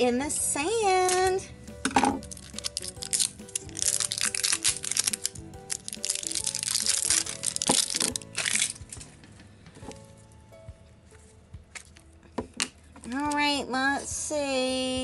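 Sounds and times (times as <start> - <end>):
light background music: 0.0 - 15.0
plastic packaging crinkling: 2.2 - 9.1.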